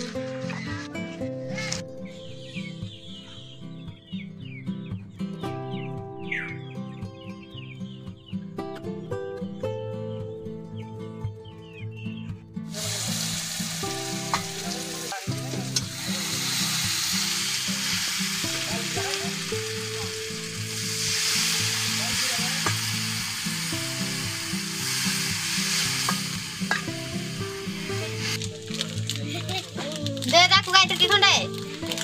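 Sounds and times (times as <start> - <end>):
background music: 0.0 - 32.0
oil and spices sizzling: 12.7 - 32.0.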